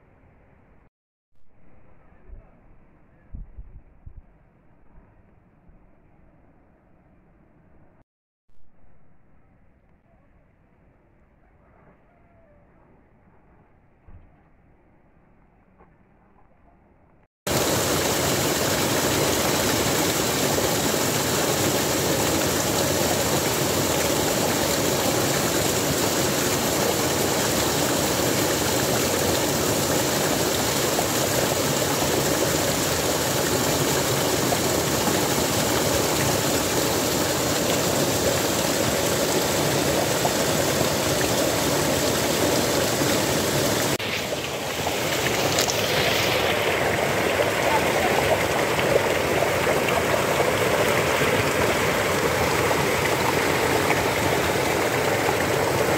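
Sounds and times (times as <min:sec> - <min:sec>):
waterfall splashing onto rocks: 0:17.5 - 0:55.9.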